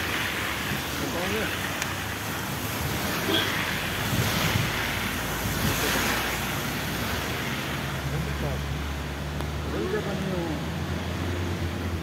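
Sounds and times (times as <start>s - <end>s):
tyres rushing on wet road: 0.0s - 12.0s
wind noise: 3.8s - 6.3s.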